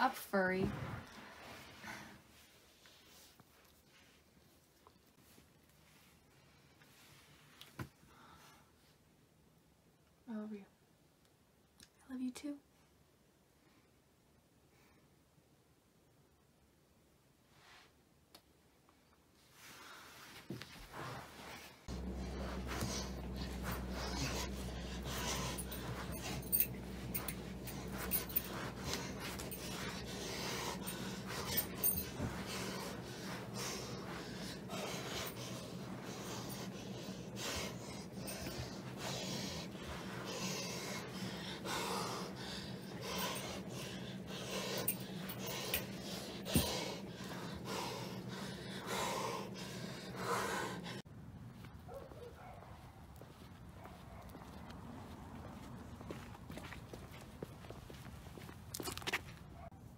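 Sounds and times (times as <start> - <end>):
rustling: 19.4 - 42.3
low steady hum: 21.8 - 51.7
person breathing heavily: 21.9 - 51.0
person panting: 21.9 - 51.0.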